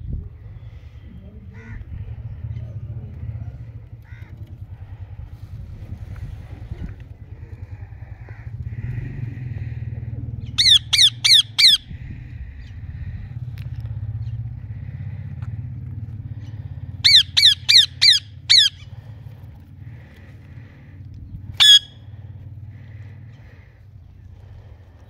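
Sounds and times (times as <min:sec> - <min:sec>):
steady low hum: 0:00.0 - 0:25.0
parakeets squawking: 0:10.4 - 0:13.2, 0:16.4 - 0:19.0, 0:21.5 - 0:22.2.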